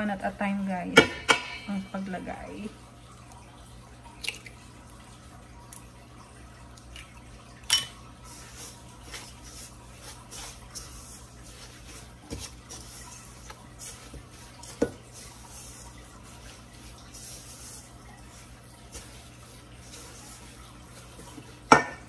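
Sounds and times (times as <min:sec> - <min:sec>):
spatula scraping dough in bowl: 0:08.2 - 0:21.7.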